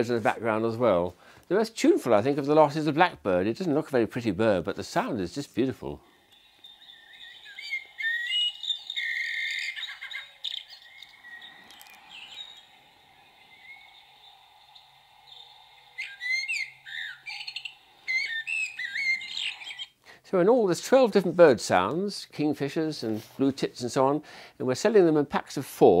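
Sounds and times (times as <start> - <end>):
recorded blackbird song: 6.0 - 20.0.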